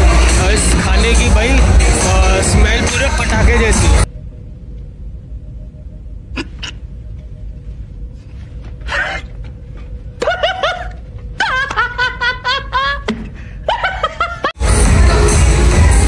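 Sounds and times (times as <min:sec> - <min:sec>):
man laughing: 0:10.2 - 0:14.6.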